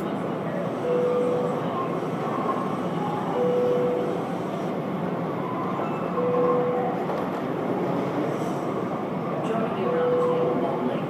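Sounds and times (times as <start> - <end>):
medium-pitched beep: 0.8 - 1.6, 3.4 - 4.0, 6.2 - 6.9.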